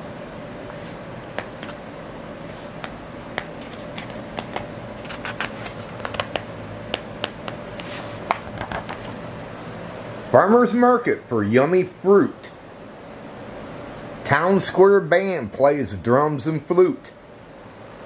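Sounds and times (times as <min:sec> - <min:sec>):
faint steady hum: 0:00.0 - 0:18.0
paper pages turning: 0:02.4 - 0:06.4, 0:07.2 - 0:09.2.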